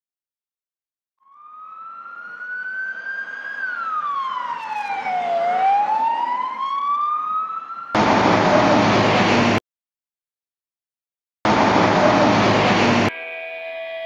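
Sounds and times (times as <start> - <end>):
emergency vehicle siren wailing: 1.2 - 9.6, 11.5 - 14.0.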